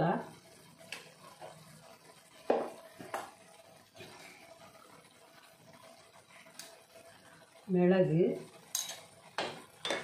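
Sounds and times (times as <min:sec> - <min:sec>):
metal utensils clinking: 0:08.7 - 0:09.1.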